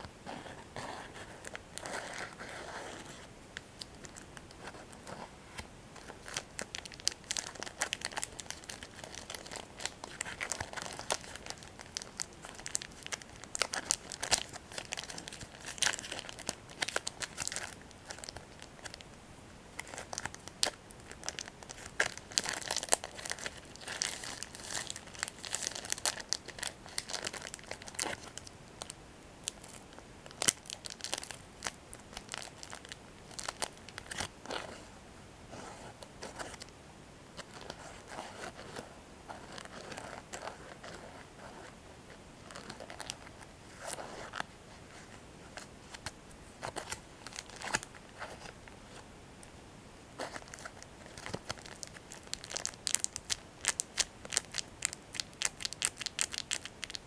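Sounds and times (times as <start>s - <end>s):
plastic wrapper crinkling: 6.0s - 19.0s, 19.8s - 34.7s, 42.4s - 44.5s, 45.6s - 48.6s, 50.2s - 57.0s.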